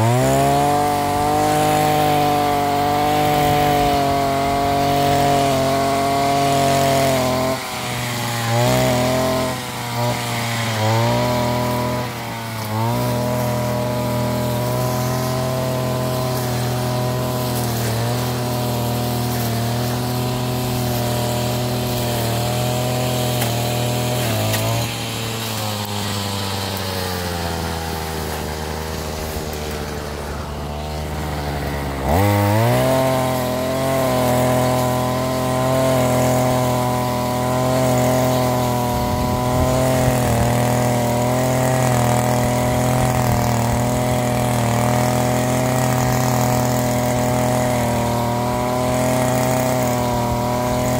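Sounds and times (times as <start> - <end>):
brush cutter engine revving: 0.0 - 50.9.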